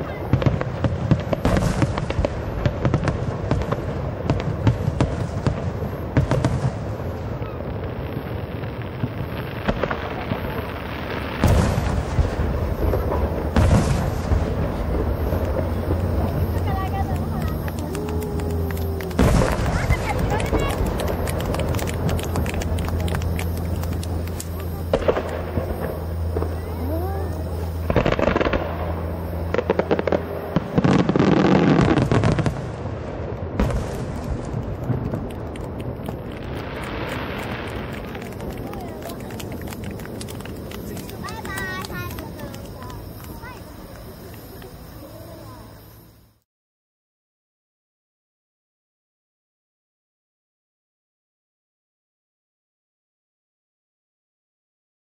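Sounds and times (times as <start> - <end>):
firework booms: 0.0 - 44.7
firework cracks: 0.0 - 46.0
low rumble: 9.0 - 41.2.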